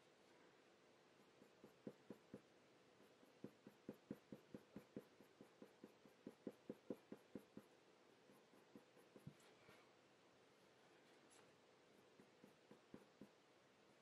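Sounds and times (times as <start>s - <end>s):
pencil scratching on paper: 1.2s - 7.7s, 8.3s - 9.4s, 12.0s - 13.4s.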